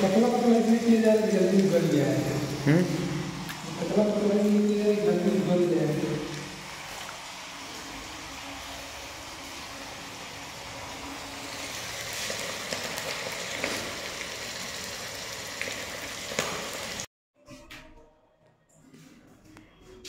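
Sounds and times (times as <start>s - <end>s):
food sizzling in hot oil: 6.0s - 17.1s.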